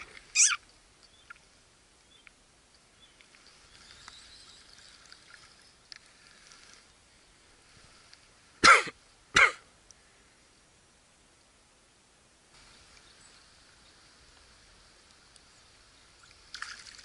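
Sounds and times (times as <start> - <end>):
man coughing: 8.6 - 9.7.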